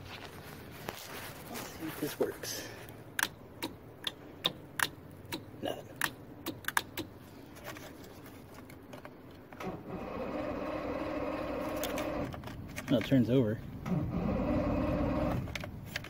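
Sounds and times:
starter cranking engine: 9.6 - 12.4, 13.8 - 15.6.

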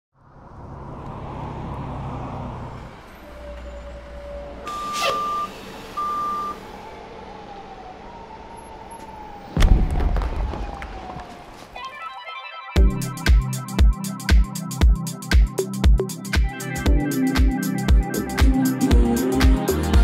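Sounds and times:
traffic rumble: 0.2 - 12.0
siren wailing: 3.1 - 12.8
short flat beeps: 4.7 - 6.6.

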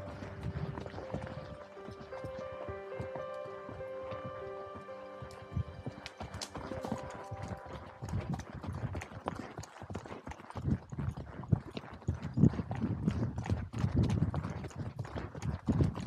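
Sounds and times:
background music: 0.0 - 8.7
horse hooves clopping: 0.0 - 16.0.

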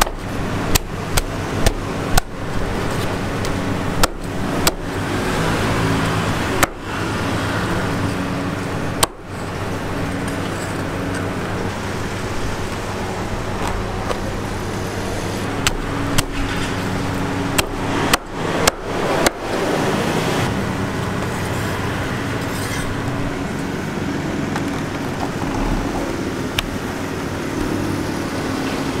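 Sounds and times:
cleaver chopping on wooden board: 0.0 - 2.3, 4.0 - 4.8, 17.5 - 19.4
low hum of traffic: 0.0 - 29.0.

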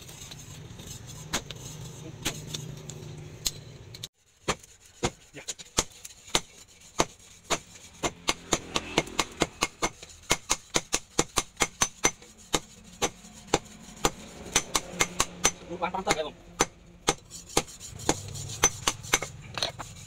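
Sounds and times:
hammer striking hot steel on anvil: 5.6 - 19.4.

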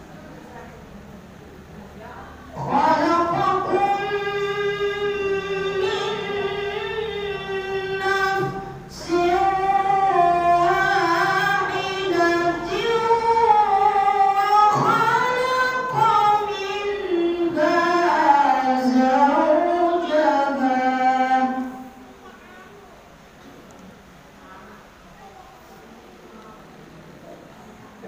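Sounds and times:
boy reciting melodically: 2.3 - 22.9.

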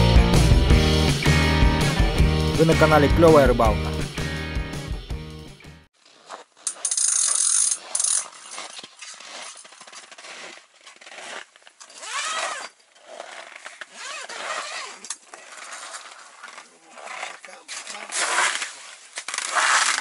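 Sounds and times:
fishing tackle clicking and rattling: 6.7 - 8.4.

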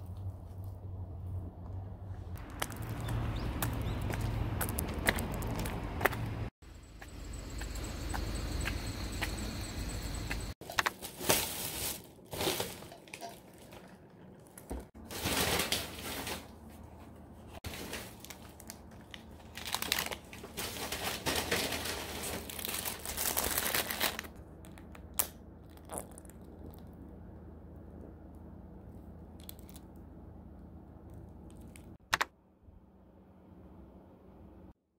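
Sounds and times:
paper packaging crinkling: 10.6 - 16.8, 17.6 - 24.8.

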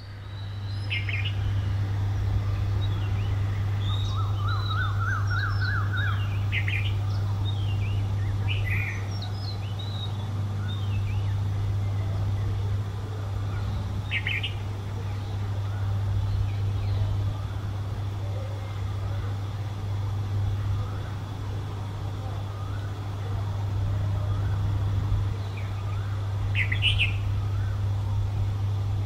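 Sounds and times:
small birds chirping: 0.0 - 29.0
steady low hum: 0.0 - 29.0.

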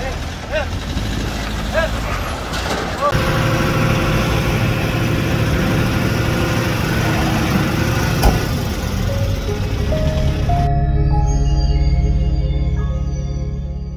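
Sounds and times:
truck engine running: 0.0 - 10.7.

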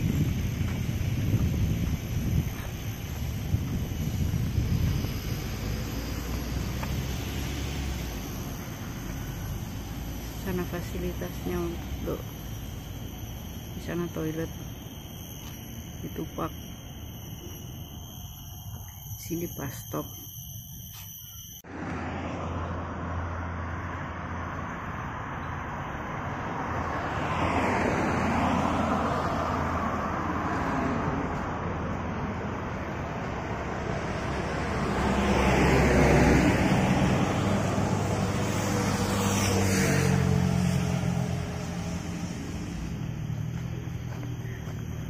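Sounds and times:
vehicles passing close by: 0.0 - 16.8, 21.6 - 45.0
steady hum of traffic: 0.0 - 45.0.

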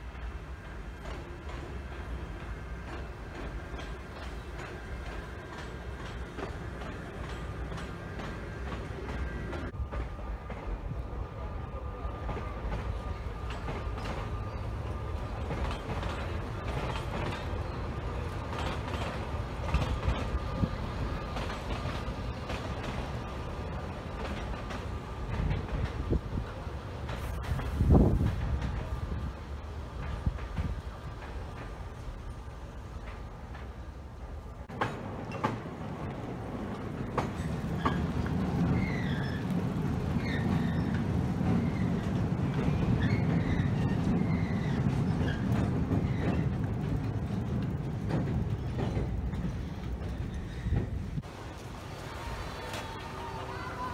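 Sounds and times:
tram rumbling on rails: 0.0 - 53.9
wheels clicking: 34.7 - 53.9.

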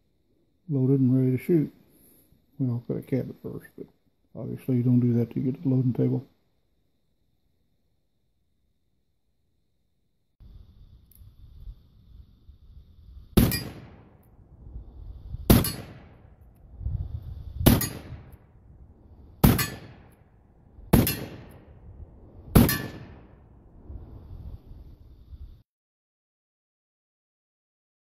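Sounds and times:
revolver shots echoing: 19.4 - 20.1, 20.9 - 21.6.

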